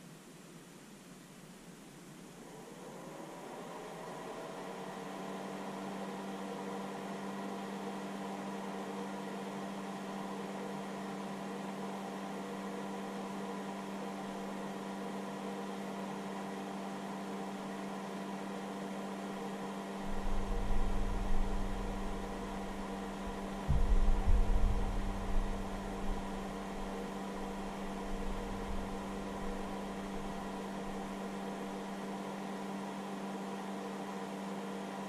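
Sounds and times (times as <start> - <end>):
battery charger hum and fan hiss: 0.0 - 35.0
low rumble with loud thumps: 20.0 - 31.0.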